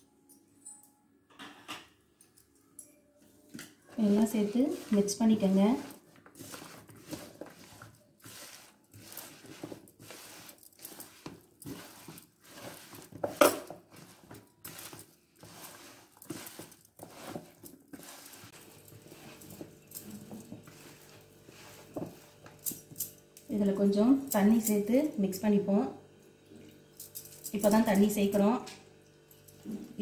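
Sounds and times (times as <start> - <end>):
hand mixing food in plastic bowl: 3.8 - 23.6.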